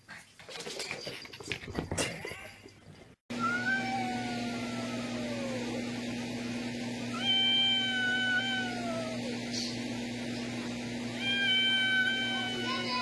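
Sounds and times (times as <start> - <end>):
cat yowling: 3.3 - 5.8, 7.1 - 9.4, 11.1 - 13.0.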